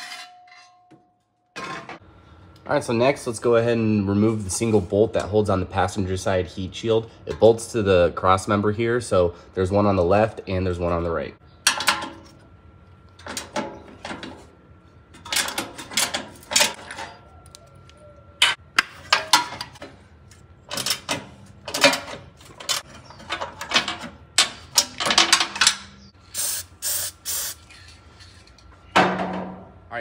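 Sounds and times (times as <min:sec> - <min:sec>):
hand tools clicking and clanking: 0:15.1 - 0:26.0
aerosol spray hissing: 0:26.4 - 0:27.6.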